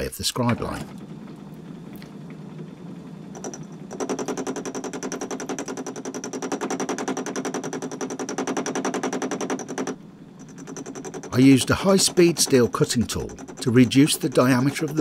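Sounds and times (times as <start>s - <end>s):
lathe tool hammering on metal: 3.4s - 15.0s.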